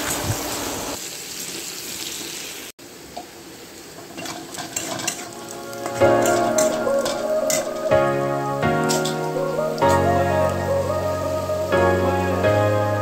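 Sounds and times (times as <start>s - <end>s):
onions sizzling in hot oil: 0.0s - 13.0s
spatula scraping: 4.0s - 7.8s
background music: 5.3s - 13.0s.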